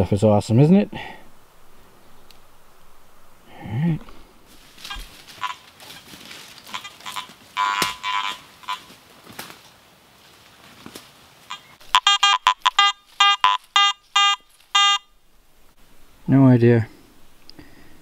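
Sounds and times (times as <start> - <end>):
metal detector beeps: 6.8 - 8.8, 11.5 - 15.1.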